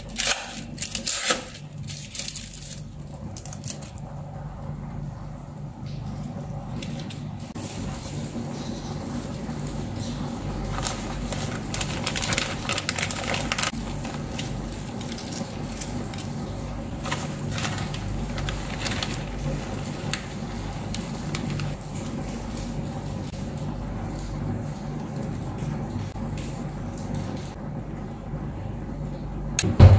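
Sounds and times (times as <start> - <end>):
plastic bags crinkling: 0.0 - 4.0, 10.6 - 21.8.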